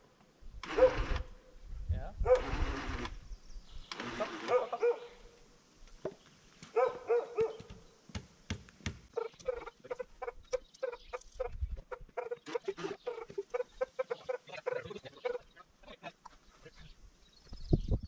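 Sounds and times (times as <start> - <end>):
chickens clucking: 9.2 - 16.4.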